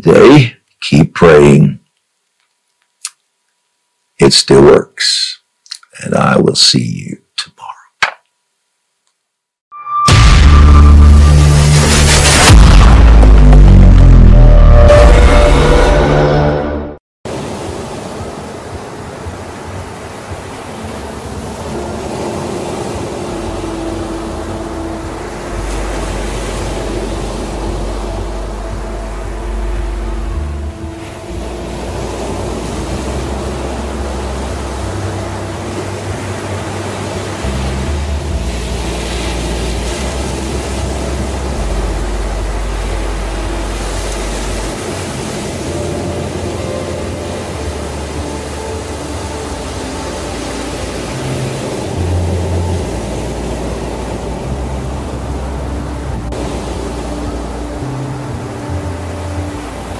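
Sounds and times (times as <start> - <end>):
low sustained hum: 10.1 - 16.5, 21.8 - 59.9
low rumble: 10.1 - 17.0
ocean surf washing: 17.3 - 59.9.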